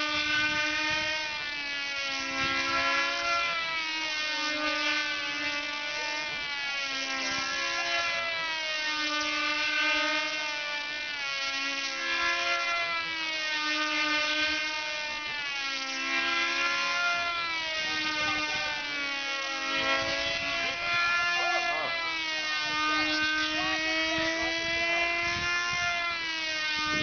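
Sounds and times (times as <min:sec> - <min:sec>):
model airplane engines buzzing: 0:00.0 - 0:27.0.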